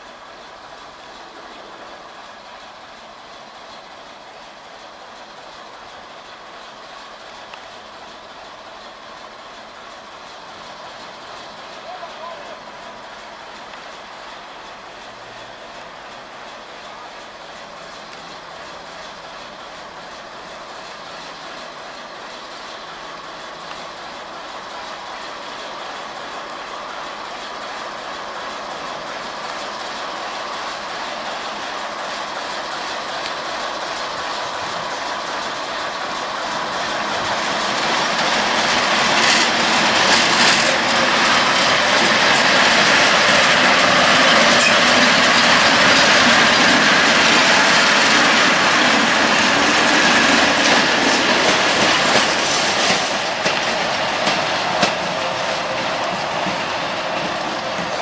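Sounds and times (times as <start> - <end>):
locomotives rolling past: 0.0 - 58.0
wheel clicks over rail joints: 36.1 - 58.0.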